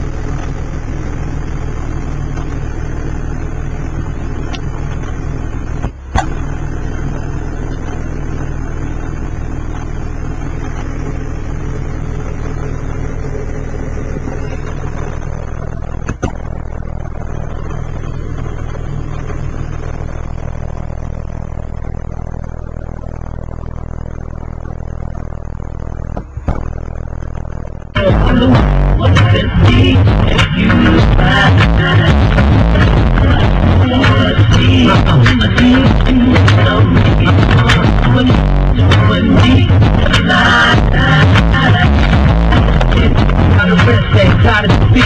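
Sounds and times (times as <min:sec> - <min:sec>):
subwoofer playing low bass tone: 0:00.0 - 0:45.0.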